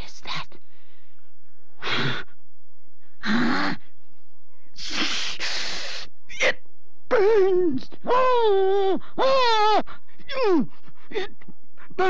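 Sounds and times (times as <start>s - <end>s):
woman's harsh rasping breathing: 4.8s - 6.1s.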